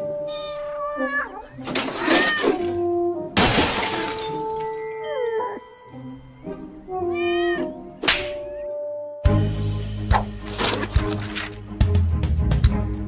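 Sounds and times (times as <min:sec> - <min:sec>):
background music: 0:00.0 - 0:13.0
cat meowing: 0:00.2 - 0:02.7, 0:07.0 - 0:07.8.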